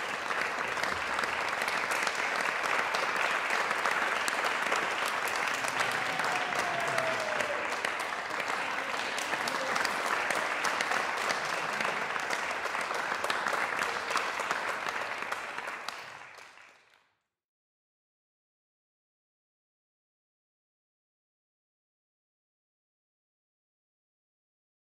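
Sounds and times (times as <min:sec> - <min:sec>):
audience applauding: 0:00.0 - 0:17.1.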